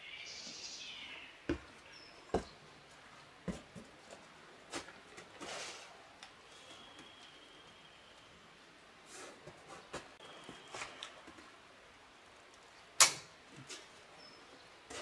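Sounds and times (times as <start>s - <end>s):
boots knocking on stone: 1.5s - 2.6s, 3.5s - 4.2s.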